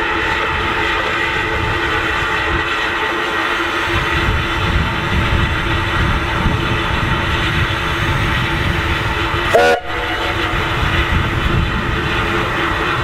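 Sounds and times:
locomotive low rumble: 0.0 - 13.0
steam hissing: 0.0 - 13.0
steam whistle blast: 9.5 - 10.8.

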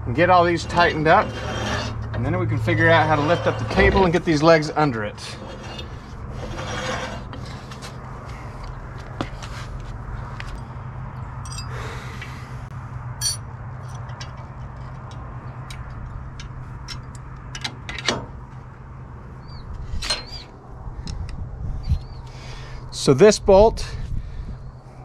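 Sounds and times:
metal bolts and nuts clinking: 11.4 - 11.8, 13.2 - 18.3.

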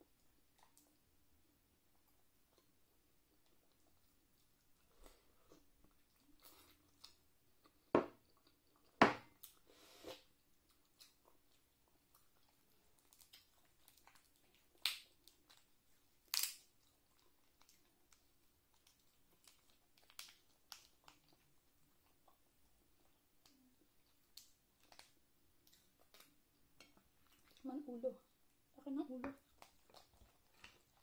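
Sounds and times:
chewing: 1.9 - 27.7, 29.4 - 31.0
shellfish shells cracking: 14.8 - 15.6, 16.2 - 16.7, 18.8 - 21.2.

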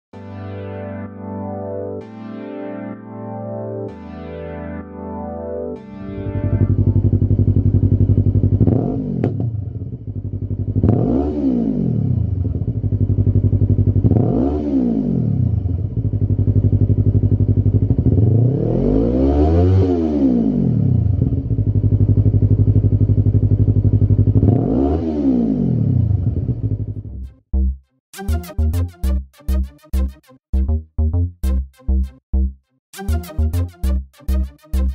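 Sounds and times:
motorcycle engine idling and revving: 6.5 - 27.4.

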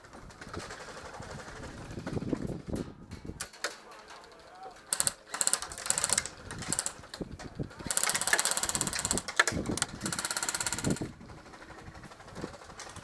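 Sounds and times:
airsoft guns firing bursts: 4.9 - 7.1, 7.8 - 11.8.

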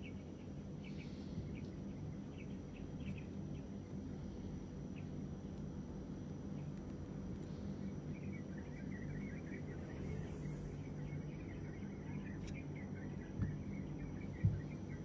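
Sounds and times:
steady low hum: 0.0 - 15.0
faint high chirping: 7.4 - 15.0.

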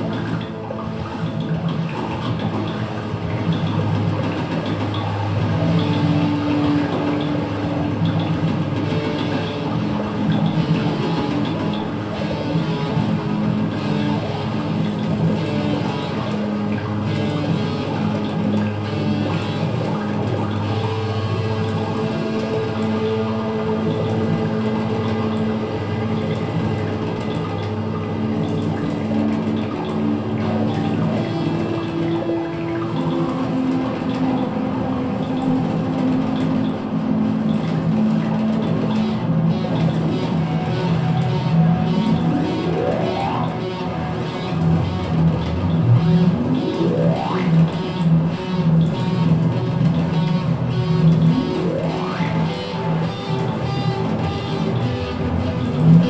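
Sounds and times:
experimental electronic drone music: 0.0 - 56.0
washy water-like noise: 0.0 - 56.0.

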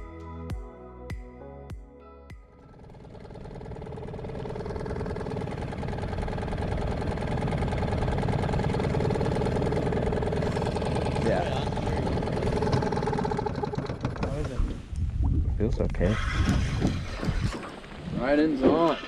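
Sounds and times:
small outboard motor running: 2.5 - 14.9, 16.1 - 18.0.

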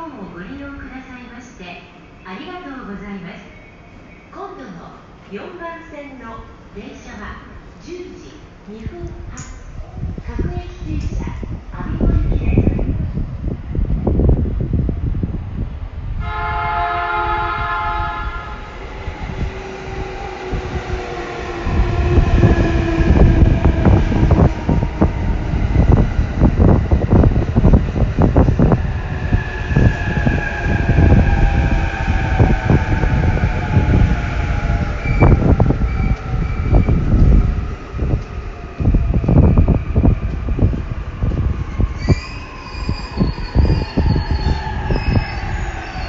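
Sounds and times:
train horn: 16.2 - 18.7.

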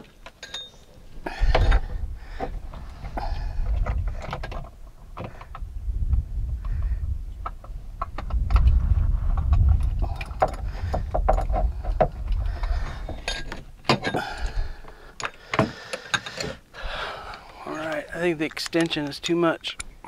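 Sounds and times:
low rumble: 1.2 - 13.4.

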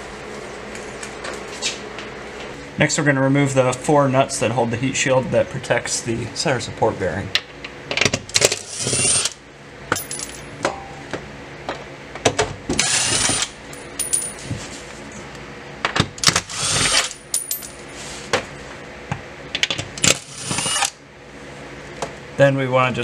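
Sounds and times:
metallic clicks and clinks: 9.9 - 10.5, 13.7 - 14.4, 17.2 - 17.8
impact driver spinning nuts: 12.8 - 14.2, 16.2 - 17.8, 20.0 - 21.0.

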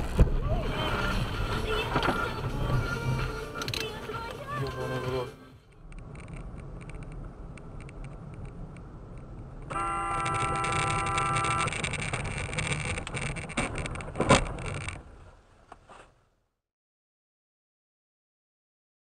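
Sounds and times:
car engine and road noise: 0.0 - 16.6
car horn: 9.7 - 11.7.

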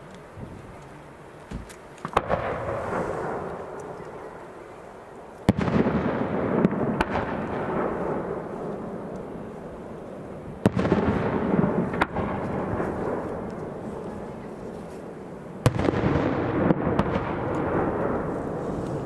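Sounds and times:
light firework pops: 0.1 - 4.2, 5.4 - 7.6, 15.0 - 19.0.

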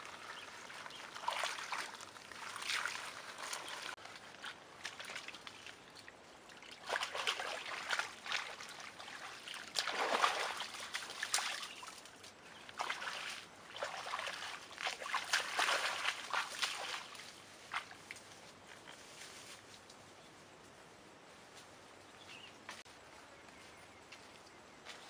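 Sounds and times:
muddy water splashing: 0.0 - 18.2.

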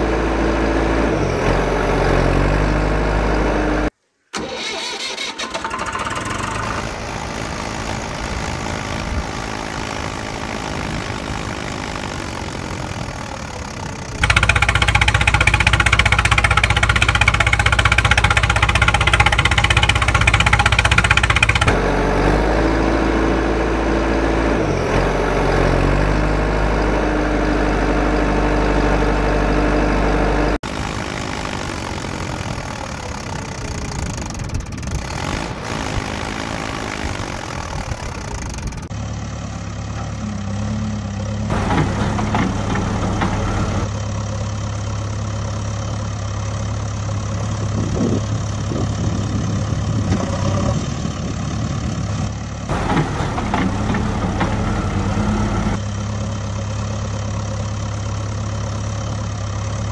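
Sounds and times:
heavy machine engine idling: 5.6 - 24.5, 27.7 - 35.2, 35.8 - 59.9
rapid clattering: 14.0 - 21.8.

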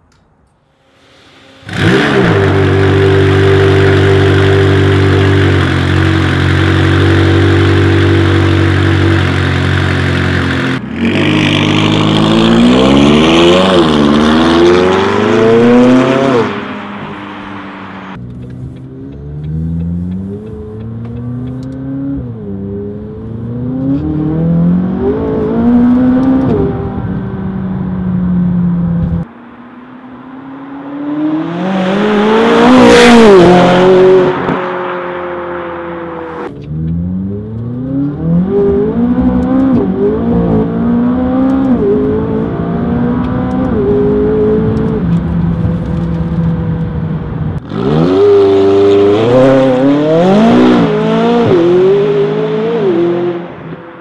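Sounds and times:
car engine revving and accelerating: 1.1 - 54.0.

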